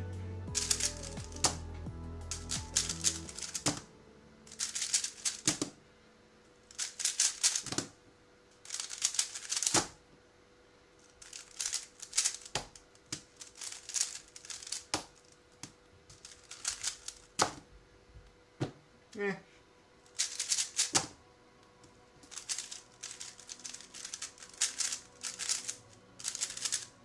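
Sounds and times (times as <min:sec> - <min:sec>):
puzzle cube clacking turns: 0:00.6 - 0:01.7, 0:02.3 - 0:03.9, 0:04.5 - 0:05.8, 0:06.7 - 0:07.9, 0:08.7 - 0:10.0, 0:11.2 - 0:15.2, 0:16.1 - 0:17.6, 0:20.1 - 0:21.2, 0:22.2 - 0:27.0.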